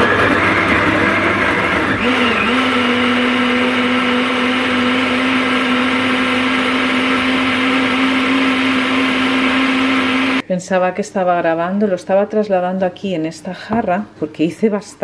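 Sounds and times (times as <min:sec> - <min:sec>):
blender motor humming: 0:00.0 - 0:10.4.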